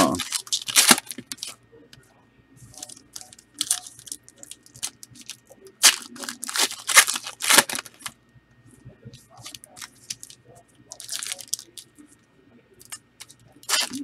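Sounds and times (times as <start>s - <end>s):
wrapper rustling: 0.0s - 1.6s, 2.7s - 8.1s, 9.4s - 11.8s, 12.8s - 14.0s
wrappers being torn open: 0.0s - 1.6s, 2.8s - 8.1s, 9.4s - 11.9s, 12.8s - 14.0s.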